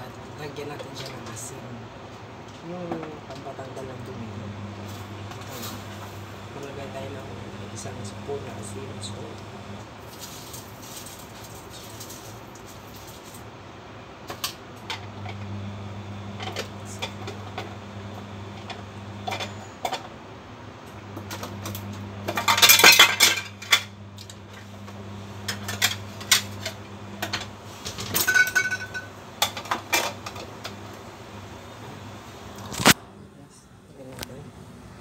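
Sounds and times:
low steady hum: 0.0 - 13.4, 14.0 - 35.0
utensils clattering: 18.6 - 20.1, 21.2 - 24.4, 25.4 - 30.8
utensils clinking on countertop: 21.2 - 23.9, 25.4 - 30.5.

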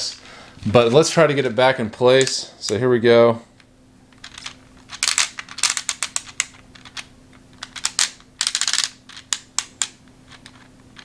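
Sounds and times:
plastic puzzle discs clicking: 4.2 - 11.0.

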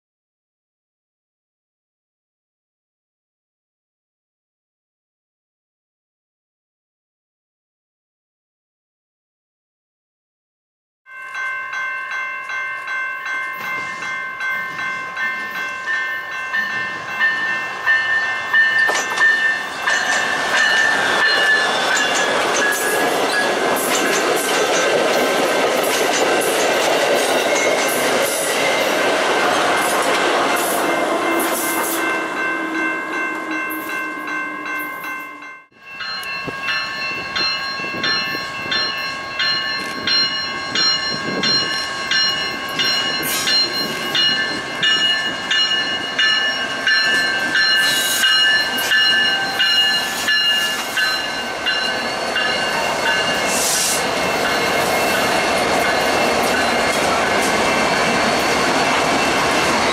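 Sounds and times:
railroad crossing bell ringing: 11.1 - 59.9
passenger train passing: 11.2 - 59.9
diesel freight train approaching: 11.4 - 59.9.

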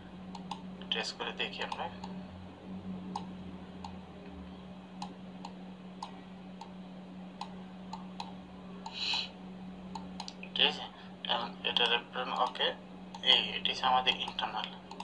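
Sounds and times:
steady low hum: 0.0 - 15.0
computer mouse button clicking: 0.3 - 0.6, 1.6 - 2.2, 3.1 - 4.0, 9.9 - 10.4, 11.8 - 13.4, 14.1 - 15.0.

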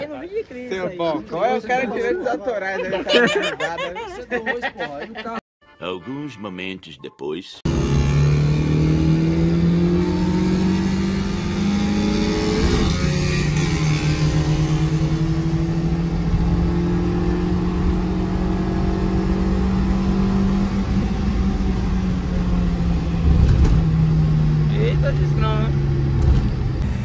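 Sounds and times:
car engine accelerating hard: 7.7 - 27.0.

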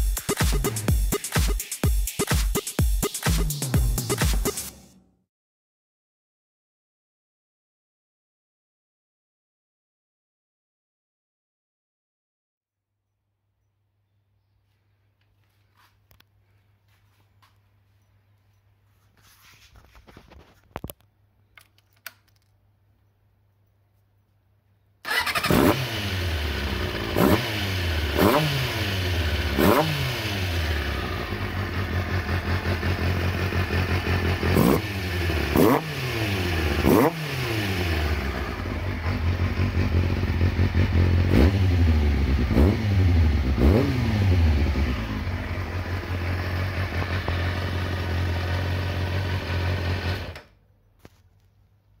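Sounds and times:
motorcycle engine idling and revving: 25.1 - 50.5.

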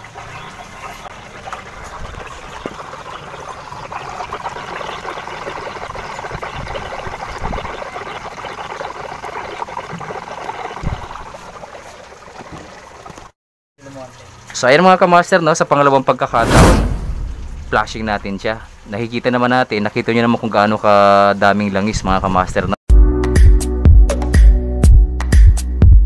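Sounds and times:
hose bubbling under water: 1.2 - 11.8.

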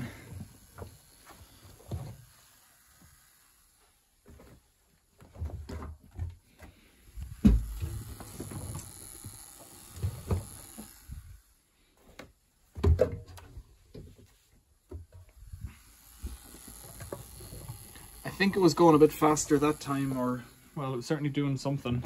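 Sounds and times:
loud thumps: 7.3 - 8.0.

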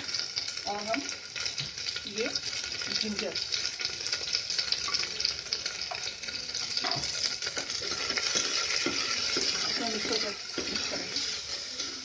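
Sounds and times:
onion rings sizzling in oil: 0.0 - 12.0
spoon scraping pan: 6.8 - 12.0.

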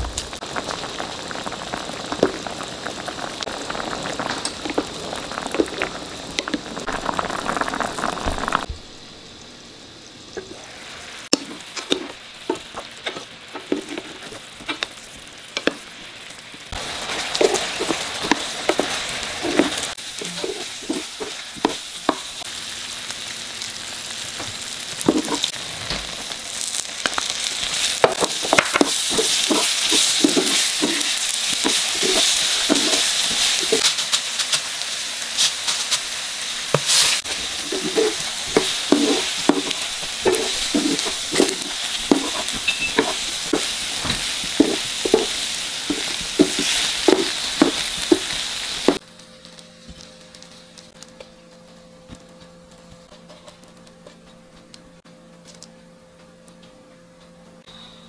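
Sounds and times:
glaze sizzling in frying pan: 0.0 - 54.8
spatula stirring: 11.3 - 14.9, 16.8 - 22.3, 25.0 - 25.5, 27.7 - 33.9, 36.8 - 49.0.

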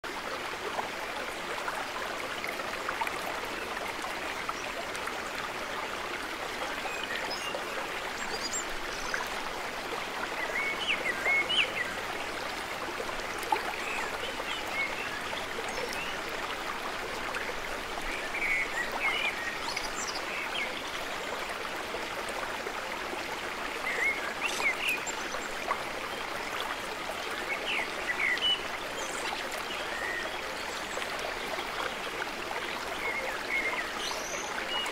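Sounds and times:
brook running: 0.0 - 34.9
small birds chirping: 23.9 - 25.6.

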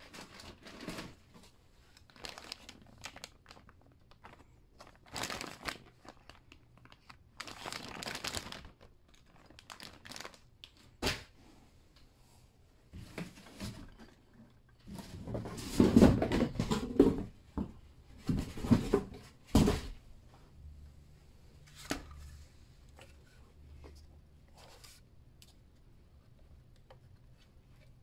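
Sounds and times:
plastic bag crinkling: 1.9 - 10.8.

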